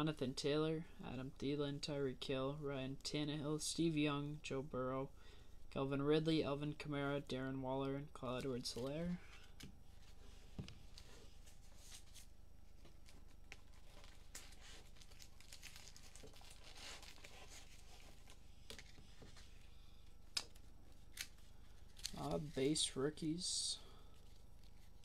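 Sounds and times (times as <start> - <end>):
trading cards rustling: 10.8 - 19.6, 20.3 - 23.3.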